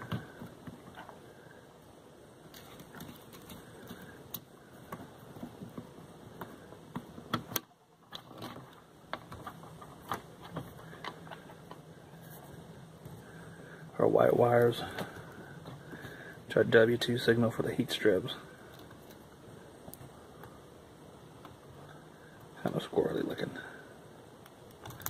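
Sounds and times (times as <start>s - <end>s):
wires and connectors clicking: 24.4s - 25.0s.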